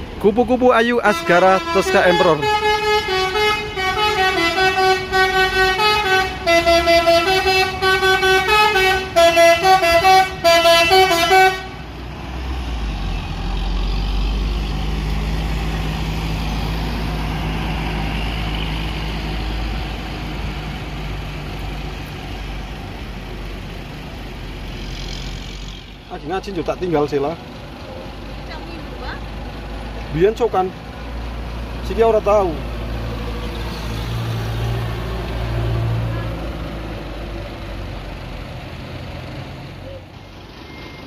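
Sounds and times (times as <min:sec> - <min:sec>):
bus diesel engine rumbling: 0:00.0 - 0:41.0
musical bus horn tune: 0:01.1 - 0:12.0.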